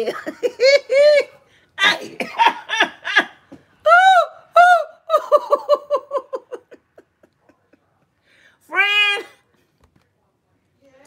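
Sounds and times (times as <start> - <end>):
woman laughing hard: 2.3 - 7.3.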